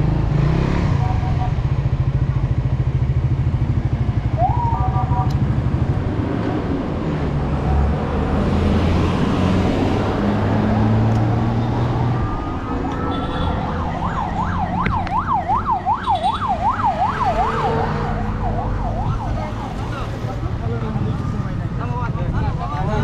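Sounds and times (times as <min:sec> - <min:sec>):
road traffic: 0:00.0 - 0:23.0
emergency vehicle siren: 0:04.3 - 0:05.4, 0:10.8 - 0:20.3.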